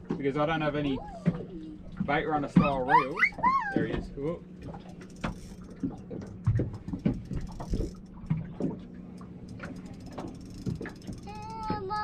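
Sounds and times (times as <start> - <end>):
fishing reel ticking: 5.0 - 6.1, 9.5 - 11.9.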